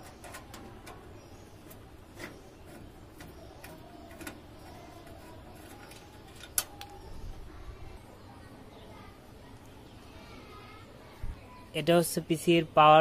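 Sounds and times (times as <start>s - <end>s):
small metallic clicks: 0.0s - 7.0s.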